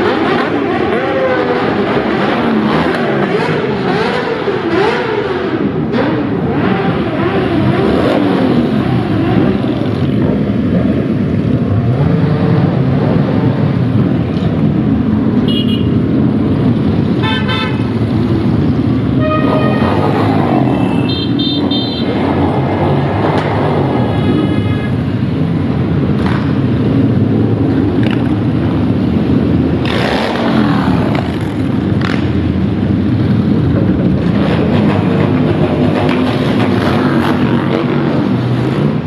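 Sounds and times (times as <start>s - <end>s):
motorcycle engines revving: 0.0s - 39.0s
horns honking: 15.4s - 16.1s, 17.1s - 18.1s, 19.1s - 22.2s.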